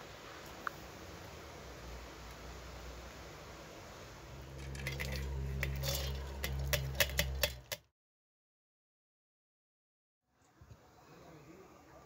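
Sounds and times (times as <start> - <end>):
low steady hum: 0.0 - 7.8
wet grains pattering on metal: 4.5 - 7.8.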